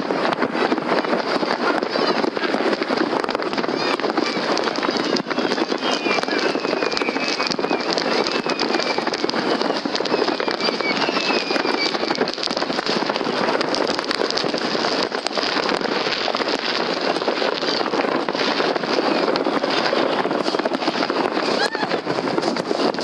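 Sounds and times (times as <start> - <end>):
fireworks crackling and popping: 0.0 - 23.0
faint falling whistles: 5.4 - 12.4.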